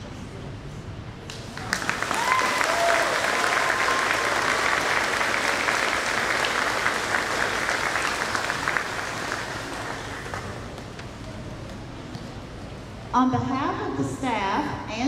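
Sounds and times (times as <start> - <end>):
audience applauding: 1.3 - 11.1.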